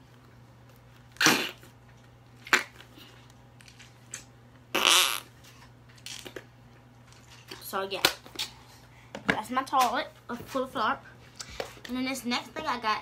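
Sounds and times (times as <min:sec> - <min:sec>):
putty fart noise: 0:01.2 - 0:01.8, 0:02.4 - 0:02.8, 0:04.7 - 0:05.4.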